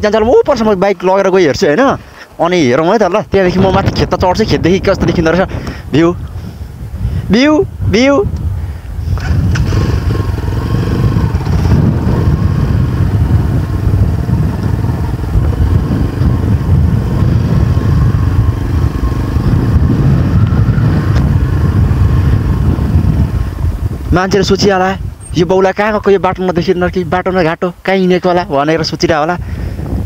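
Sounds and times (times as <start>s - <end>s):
motorcycle engine under load: 9.1s - 24.2s.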